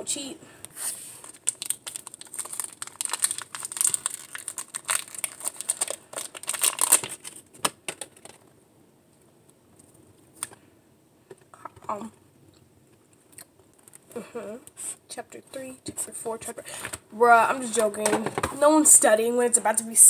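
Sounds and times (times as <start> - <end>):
plastic wrapper crinkling and tearing: 1.2 - 8.4.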